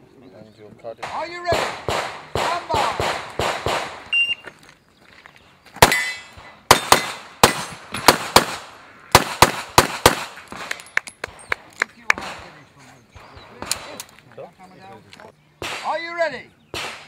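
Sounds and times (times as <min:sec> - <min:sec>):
pistol shots: 0:01.0 - 0:04.2, 0:05.8 - 0:10.8, 0:15.6 - 0:16.0, 0:16.7 - 0:17.0.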